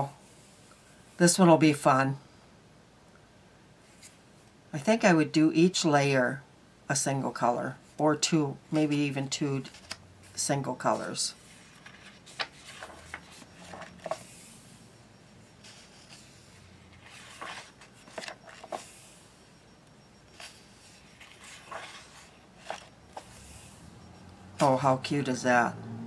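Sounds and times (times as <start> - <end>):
paper pages rustling: 8.7 - 14.6, 15.6 - 19.2, 20.3 - 23.8.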